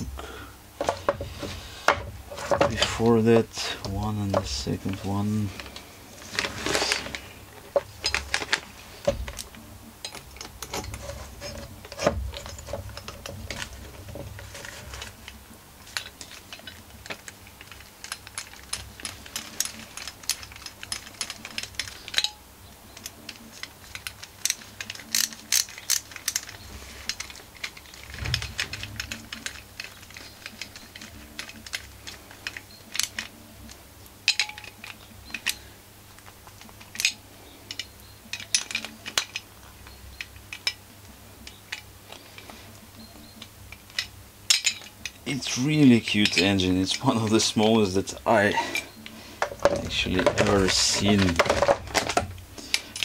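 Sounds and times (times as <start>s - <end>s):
metal clicks of hand tools: 23.0s - 35.6s, 36.2s - 39.4s.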